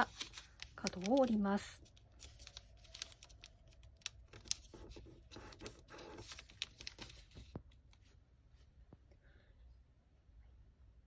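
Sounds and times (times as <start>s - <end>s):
paper rustling as folded: 0.0s - 8.1s.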